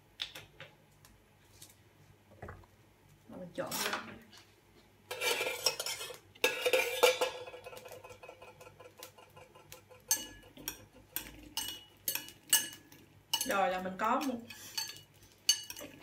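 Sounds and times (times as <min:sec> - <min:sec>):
utensils scraping ceramic bowl: 0:05.1 - 0:16.0.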